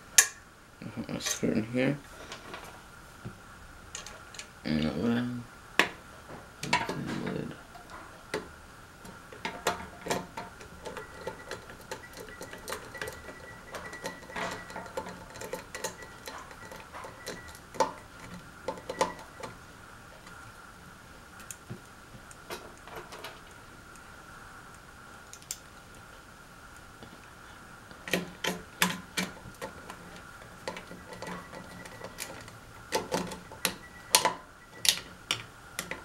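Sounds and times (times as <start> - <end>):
faint high hum: 0.0 - 36.0
screwdriver clicks and metal taps: 9.0 - 19.6, 30.6 - 36.0.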